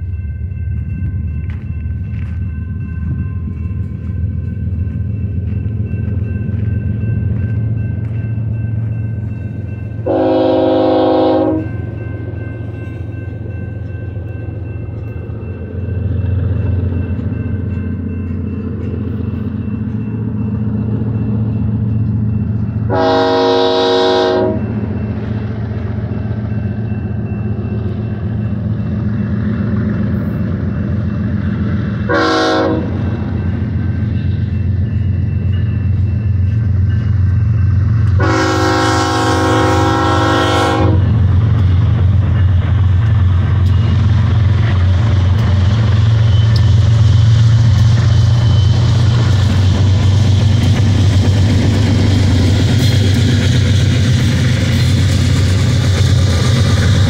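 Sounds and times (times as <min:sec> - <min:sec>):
train rumble and wheel noise: 0:00.0 - 0:57.0
locomotive air horn blasts: 0:10.0 - 0:11.8, 0:22.9 - 0:24.7, 0:32.1 - 0:33.0, 0:38.2 - 0:41.2.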